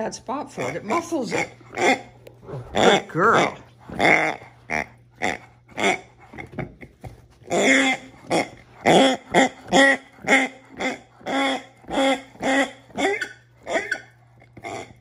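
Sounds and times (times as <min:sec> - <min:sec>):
squeaky toy grunting: 0:00.6 - 0:06.1.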